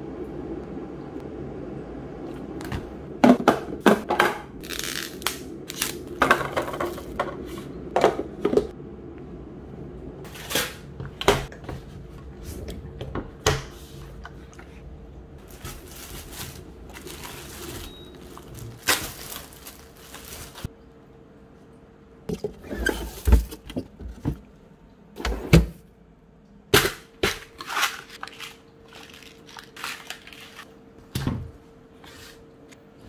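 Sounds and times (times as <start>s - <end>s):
plastic packaging crinkling: 4.6s - 6.2s, 15.4s - 20.7s, 27.6s - 30.7s.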